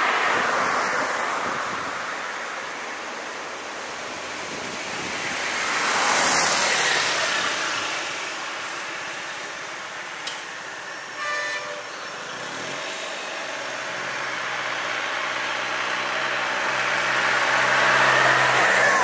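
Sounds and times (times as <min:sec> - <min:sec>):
road noise: 0:00.0 - 0:19.0
vehicle engine humming: 0:07.0 - 0:19.0
vehicle horn toot: 0:11.2 - 0:12.1.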